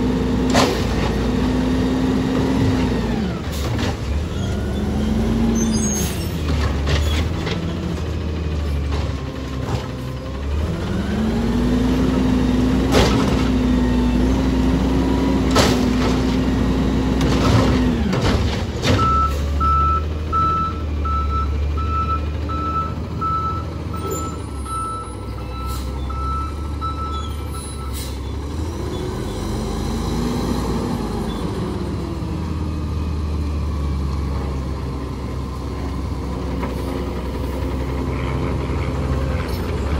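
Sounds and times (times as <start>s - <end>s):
garbage truck engine revving: 0.0s - 39.9s
trash slamming into hopper: 12.8s - 13.7s, 15.4s - 16.4s, 17.1s - 19.5s
backup alarm beeping: 19.0s - 28.0s.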